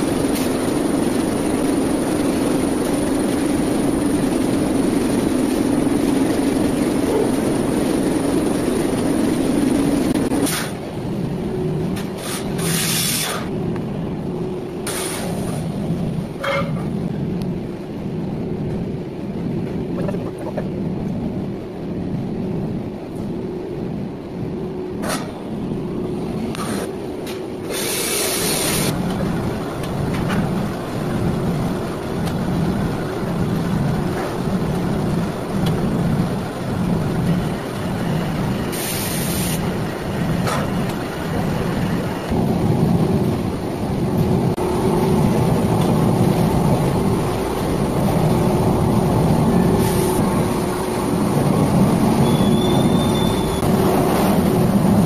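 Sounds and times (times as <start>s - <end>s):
pulsing low rumble: 0.0s - 11.9s, 15.7s - 24.9s, 39.7s - 52.2s
factory machinery humming: 0.0s - 55.0s
short hissing bursts: 38.7s - 39.6s.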